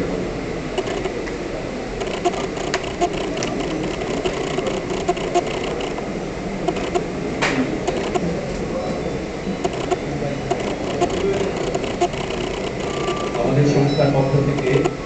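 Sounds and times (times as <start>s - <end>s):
electric fan whirring: 0.0s - 15.0s
murmur of voices: 0.0s - 15.0s
small clicks: 0.8s - 1.2s, 2.0s - 6.0s, 6.7s - 7.1s, 7.9s - 8.3s, 9.6s - 13.4s, 14.6s - 15.0s.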